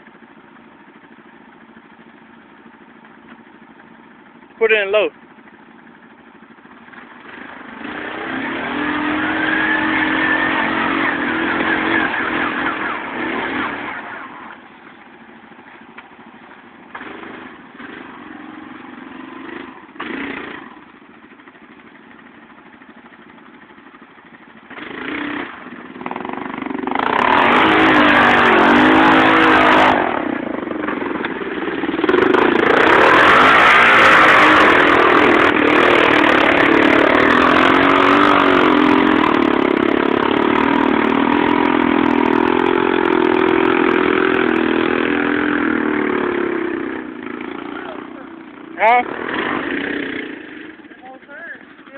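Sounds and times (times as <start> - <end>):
quad engine revving: 6.9 - 14.8, 16.8 - 20.9, 24.7 - 51.9.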